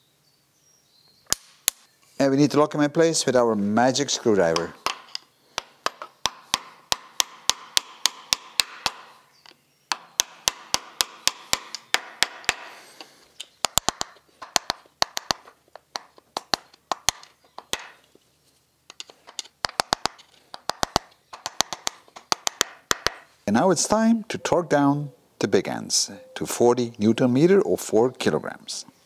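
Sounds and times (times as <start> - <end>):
screwdriver tapping metal bolts: 4.5 - 12.7.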